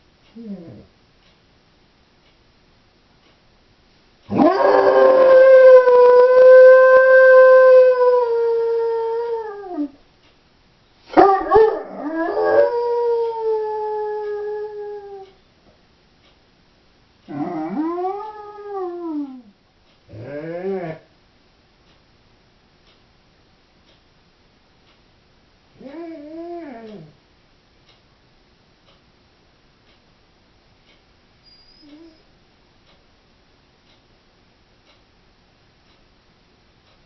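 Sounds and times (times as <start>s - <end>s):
dog howling: 4.3s - 10.0s, 11.1s - 15.4s, 17.3s - 19.5s.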